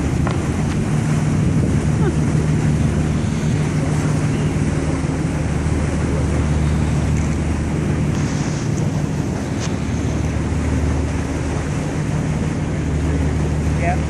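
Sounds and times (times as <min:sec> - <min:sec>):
boat engine droning: 0:00.0 - 0:14.0
water rushing past hull: 0:00.0 - 0:14.0
wind buffeting microphone: 0:00.0 - 0:14.0.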